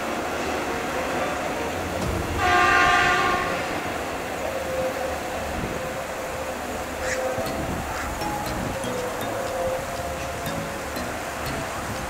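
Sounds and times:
machine horn blast: 0:02.2 - 0:03.8.

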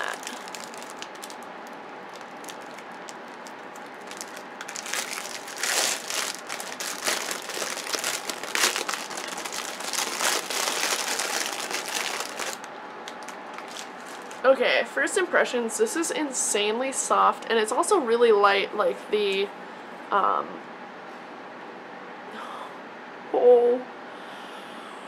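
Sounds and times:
plastic packaging crinkling: 0:00.0 - 0:14.5.

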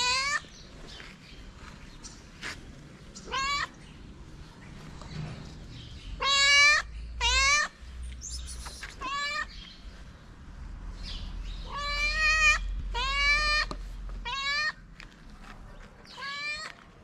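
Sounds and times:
cat meowing: 0:03.2 - 0:03.7, 0:06.2 - 0:07.7, 0:09.0 - 0:09.5, 0:11.6 - 0:14.8, 0:16.2 - 0:16.7.

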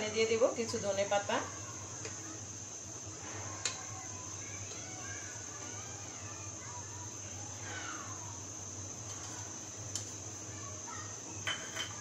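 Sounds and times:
spoon clinking against pot: 0:11.4 - 0:12.0.

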